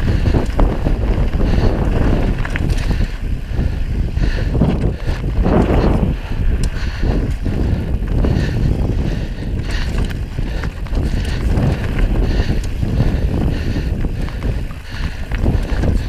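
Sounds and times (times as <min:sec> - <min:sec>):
bike rattling and knocking: 0:00.0 - 0:16.0
wind rumble on microphone: 0:00.0 - 0:16.0
tyres crunching over rock: 0:00.3 - 0:03.4, 0:09.5 - 0:16.0.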